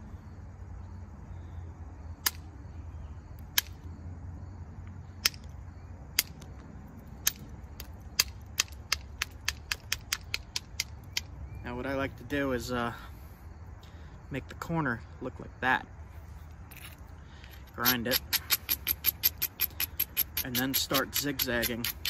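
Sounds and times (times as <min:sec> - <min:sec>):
flint knapping clicks: 0:02.2 - 0:02.5, 0:03.5 - 0:03.8, 0:06.2 - 0:06.6, 0:07.2 - 0:11.3, 0:16.7 - 0:22.0.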